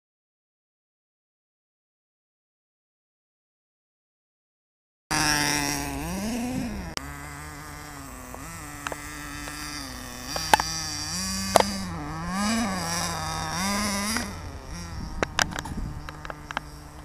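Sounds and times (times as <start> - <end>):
small nitro engine buzzing: 5.1 - 17.0
sharp clicks: 15.2 - 16.7.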